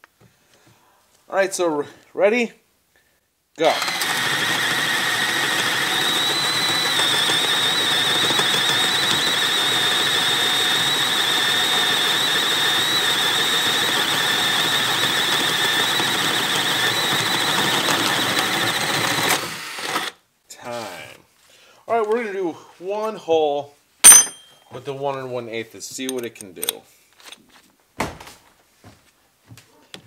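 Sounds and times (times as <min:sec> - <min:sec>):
cordless drill whining: 0:03.6 - 0:20.2
drill bit boring through wood: 0:03.6 - 0:20.2.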